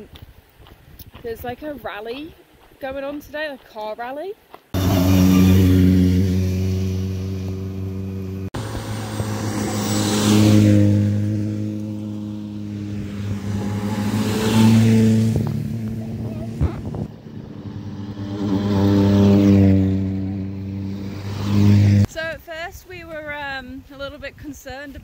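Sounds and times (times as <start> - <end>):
rally cars driving past: 4.8 - 22.1.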